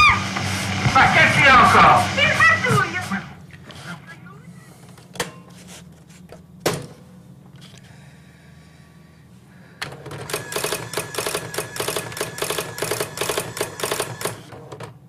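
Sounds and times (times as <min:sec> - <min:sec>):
dot-matrix printer printing: 0:09.9 - 0:14.6.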